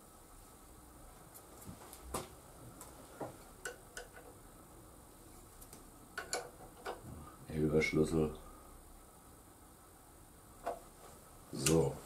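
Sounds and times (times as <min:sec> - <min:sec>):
wrench clicks and taps: 0:06.2 - 0:07.0.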